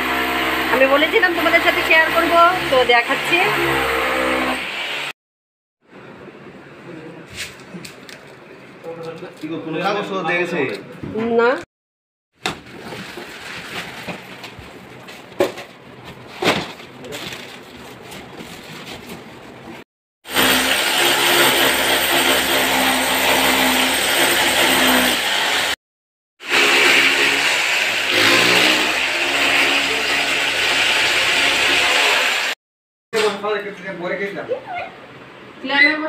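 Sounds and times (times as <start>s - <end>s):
power drill drilling into wall: 0.0s - 5.1s, 20.3s - 25.8s, 26.4s - 32.6s.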